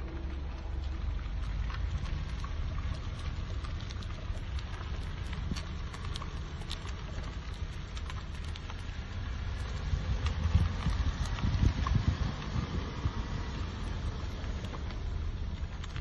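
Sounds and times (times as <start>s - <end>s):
road and wind noise: 0.0s - 16.0s.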